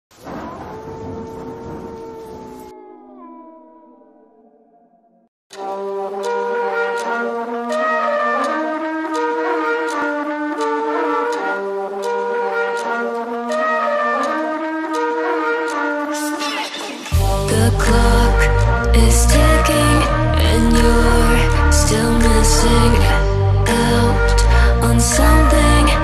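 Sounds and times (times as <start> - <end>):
trap music: 5.5 - 26.0.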